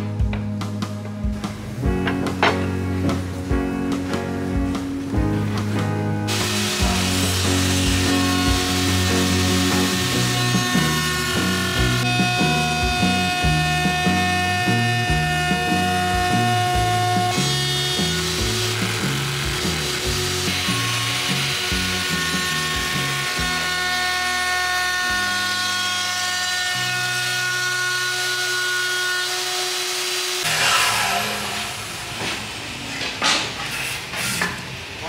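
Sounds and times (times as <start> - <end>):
background music with bass line: 0.0 - 25.4.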